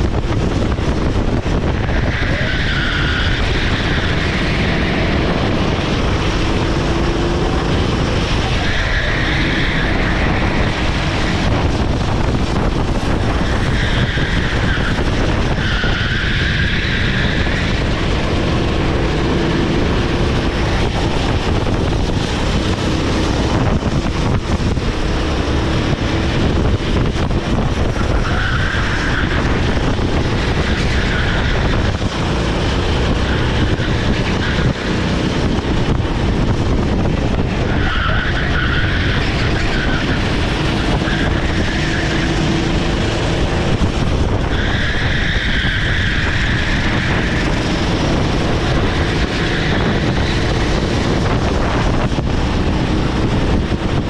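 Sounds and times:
kart engine running hard: 0.0 - 54.0
wind noise on microphone: 0.0 - 54.0
tyres squealing: 1.7 - 11.7, 13.1 - 21.5, 27.8 - 35.9, 37.4 - 54.0.

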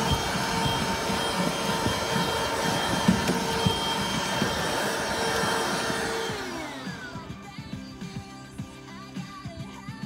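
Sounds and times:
vacuum cleaner running: 0.0 - 8.3.

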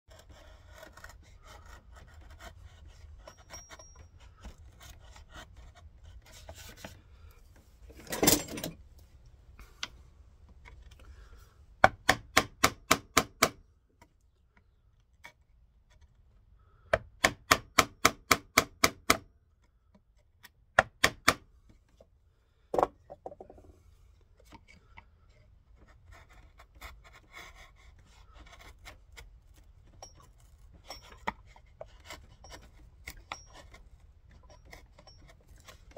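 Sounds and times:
chisel shaving wood: 0.1 - 7.4, 24.3 - 35.9.

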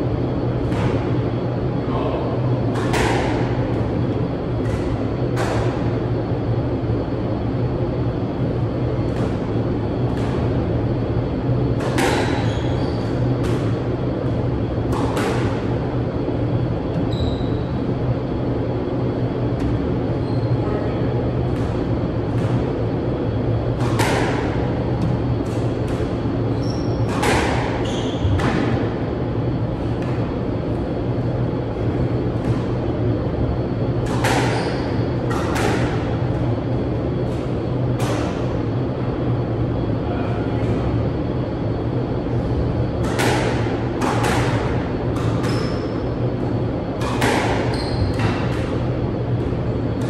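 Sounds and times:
steady low hum: 0.0 - 50.0
squash ball hitting walls: 0.3 - 1.4, 2.6 - 6.0, 8.9 - 10.7, 11.5 - 16.0, 21.4 - 29.0, 33.8 - 36.6, 43.0 - 45.9, 46.9 - 50.0
sneakers squeaking on wooden floor: 12.3 - 13.2, 16.9 - 17.7, 19.6 - 20.7, 26.5 - 27.2, 27.8 - 28.6, 34.5 - 35.1, 45.4 - 46.0, 47.6 - 48.4.

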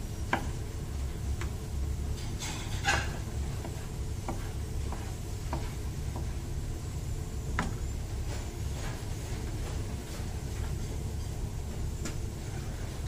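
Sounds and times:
steady low hum: 0.0 - 13.0
knife tapping cutting board: 3.6 - 6.3.

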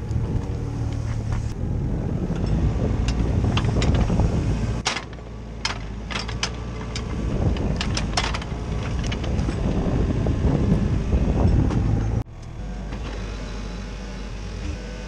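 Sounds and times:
excavator diesel engine droning: 0.0 - 15.0
sharp clicks and knocks: 4.8 - 9.7.

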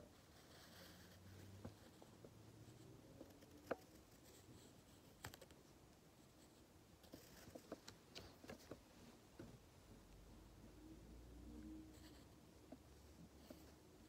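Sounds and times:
pencil tapping and scratching on paper: 0.0 - 5.6, 6.3 - 8.8, 11.9 - 14.0.

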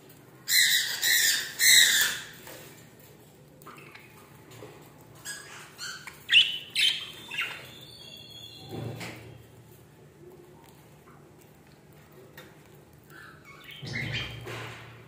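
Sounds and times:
budgerigars chirping: 5.3 - 8.6.

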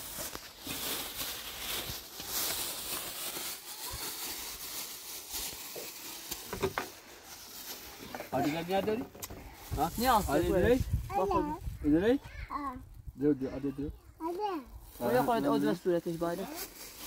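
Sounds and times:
plastic bag crinkling: 0.0 - 11.3, 14.7 - 17.0.

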